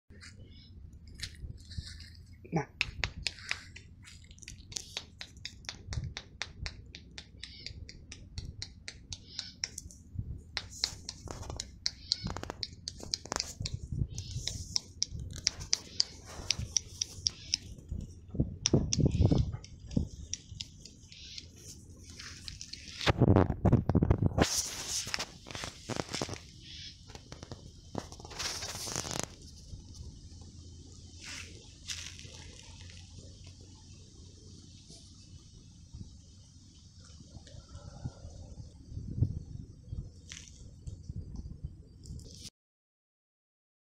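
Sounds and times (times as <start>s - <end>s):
footsteps rustling through grass: 1.2s - 2.4s, 21.7s - 23.2s, 24.4s - 26.6s, 31.1s - 33.1s
sharp irregular clicks: 2.8s - 23.2s.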